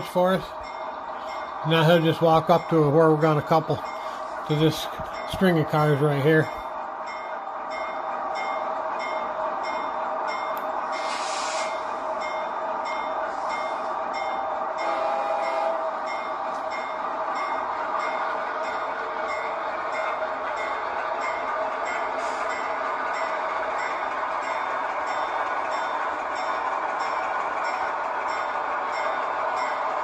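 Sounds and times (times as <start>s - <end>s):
diesel locomotive running: 0.0s - 30.0s
locomotive bell ringing: 0.0s - 30.0s
short hiss: 11.0s - 11.9s.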